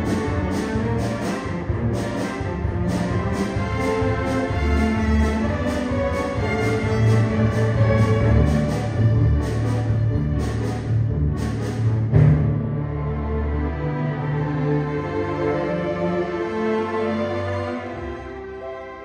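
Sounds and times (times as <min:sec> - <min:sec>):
bowed strings: 0:00.0 - 0:19.0
piano: 0:15.2 - 0:19.0.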